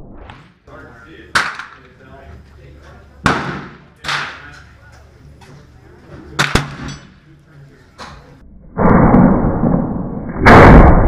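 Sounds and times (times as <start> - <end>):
musket shot report: 1.3 - 2.0, 3.2 - 4.7, 6.4 - 7.1.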